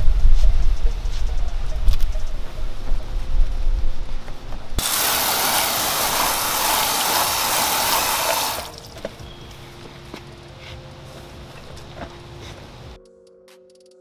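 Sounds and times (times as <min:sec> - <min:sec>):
hose water spraying on car: 0:04.8 - 0:08.9.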